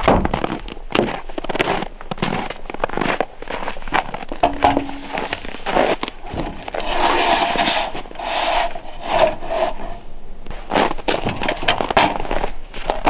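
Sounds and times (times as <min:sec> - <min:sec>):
wooden panel scraping on sawhorses: 0:04.4 - 0:10.1.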